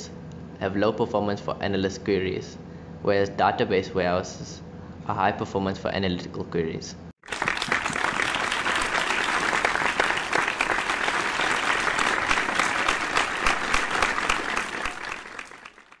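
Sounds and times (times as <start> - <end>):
crowd applause: 7.2 - 16.0.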